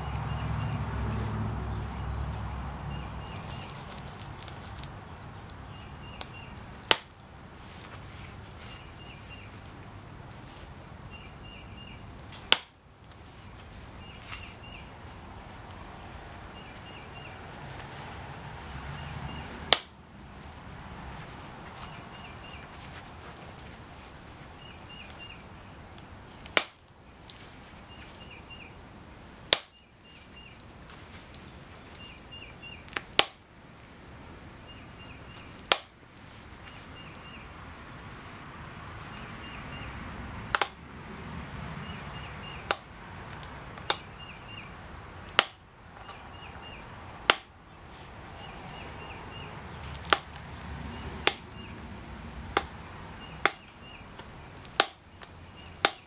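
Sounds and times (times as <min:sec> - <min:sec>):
low rustle of gloves: 0:00.0 - 0:05.2, 0:06.4 - 0:11.3, 0:12.2 - 0:25.6, 0:27.1 - 0:28.6, 0:30.0 - 0:32.5, 0:35.3 - 0:39.6, 0:47.7 - 0:50.0.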